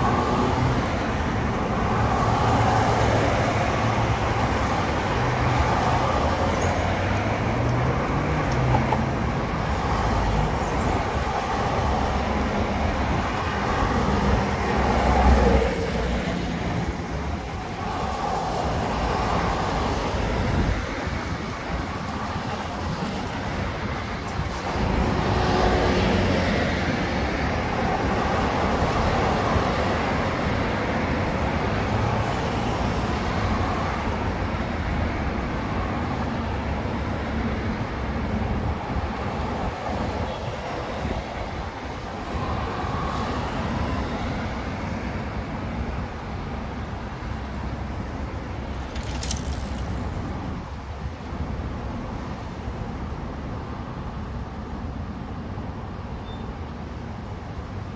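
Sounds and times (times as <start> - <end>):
road traffic passing: 0.0 - 57.9.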